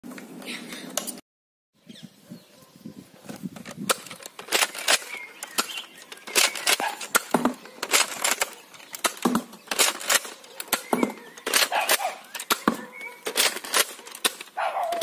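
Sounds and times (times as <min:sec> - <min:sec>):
hard plastic clicks and knocks: 0:03.6 - 0:15.0.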